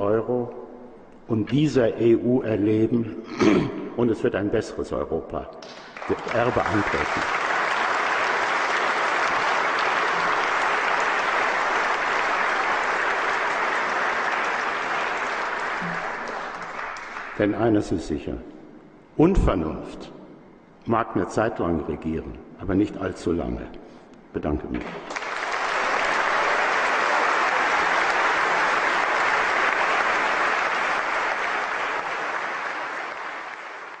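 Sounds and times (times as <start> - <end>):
large audience applauding: 5.6 - 17.6, 24.8 - 34.0.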